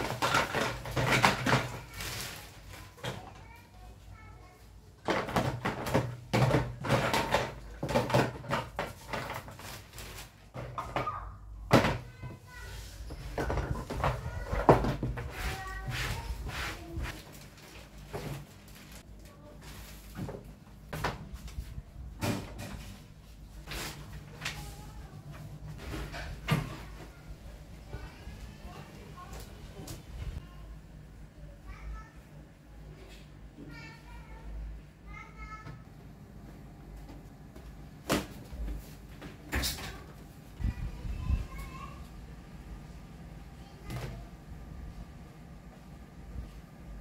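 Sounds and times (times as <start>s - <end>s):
plastic bag rustling: 0.0s - 3.3s, 8.1s - 10.7s, 15.5s - 20.6s
plastic toys clattering: 0.0s - 3.4s, 5.0s - 12.2s
paper sheets rustling: 0.6s - 3.0s, 8.8s - 10.6s.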